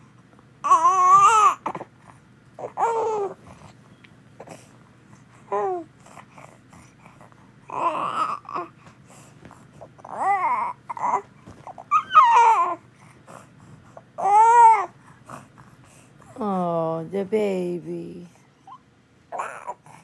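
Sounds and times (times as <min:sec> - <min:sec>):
baby babbling and fussing: 0:00.6 - 0:01.9, 0:02.6 - 0:03.4, 0:05.4 - 0:05.9, 0:07.6 - 0:08.8, 0:09.8 - 0:12.8, 0:14.2 - 0:15.0, 0:18.6 - 0:20.0.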